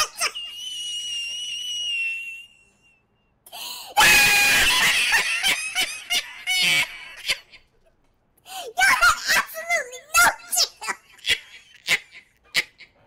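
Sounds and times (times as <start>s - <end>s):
man laughing hysterically: 4.0s - 7.6s, 10.9s - 13.0s.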